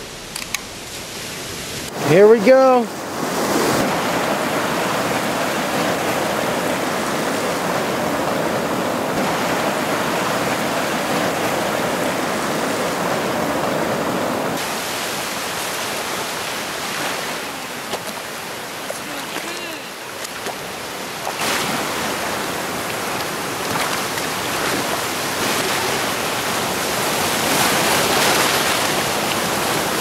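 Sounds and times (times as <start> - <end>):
ocean surf washing over sand: 1.0 - 30.0.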